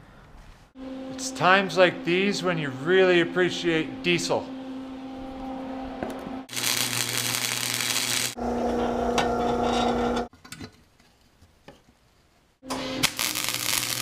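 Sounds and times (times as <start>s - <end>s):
wire welding hiss and crackle: 6.5s - 8.4s, 13.0s - 14.0s.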